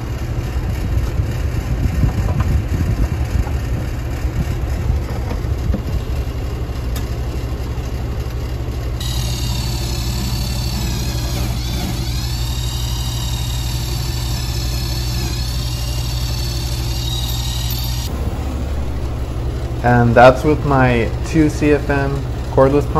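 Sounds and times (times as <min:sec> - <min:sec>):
vacuum pump humming: 0:00.0 - 0:22.9
cordless tool whining: 0:09.0 - 0:19.9.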